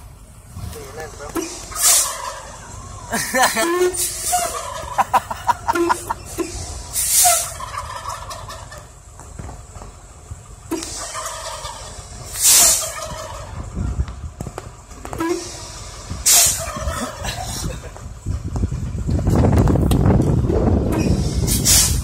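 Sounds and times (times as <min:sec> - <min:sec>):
turkeys gobbling: 0:01.3 - 0:09.0, 0:10.7 - 0:14.1, 0:16.3 - 0:17.9
air brakes hissing: 0:01.4 - 0:02.9, 0:03.7 - 0:04.6, 0:05.8 - 0:07.6, 0:10.7 - 0:11.3, 0:12.0 - 0:13.0, 0:15.1 - 0:16.7, 0:20.9 - 0:22.0.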